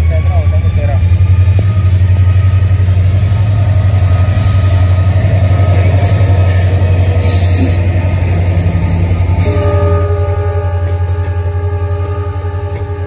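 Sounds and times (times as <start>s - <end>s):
diesel locomotive engine throbbing: 0.0s - 13.0s.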